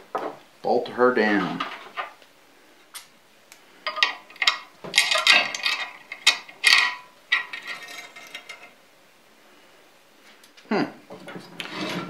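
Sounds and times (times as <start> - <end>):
wrench clicking and rattling on metal: 3.9 - 8.7.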